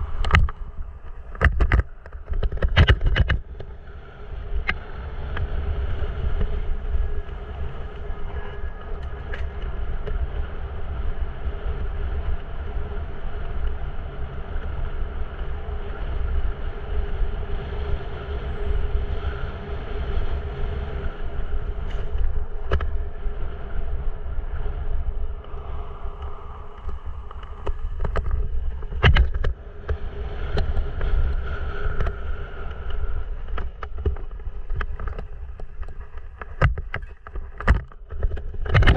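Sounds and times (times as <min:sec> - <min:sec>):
wind and tyre rumble: 0:00.0 - 0:38.9
bike knocks and rattles: 0:00.2 - 0:03.7, 0:26.8 - 0:32.3, 0:32.9 - 0:38.9.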